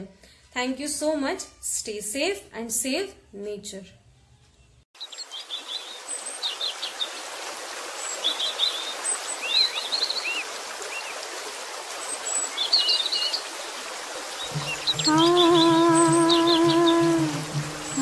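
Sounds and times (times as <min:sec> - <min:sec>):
running water: 0:05.5 - 0:18.0
birds chirping and trilling: 0:14.4 - 0:18.0.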